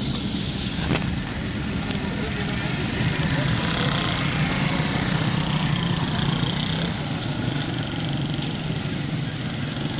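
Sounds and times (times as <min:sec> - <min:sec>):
road traffic din: 0:00.0 - 0:09.9
small motorcycle engines pulling away: 0:02.9 - 0:09.9.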